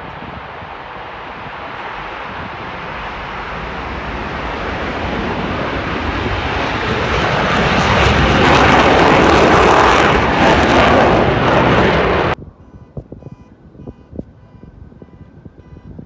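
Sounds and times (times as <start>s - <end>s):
jet roar: 0.0s - 12.6s.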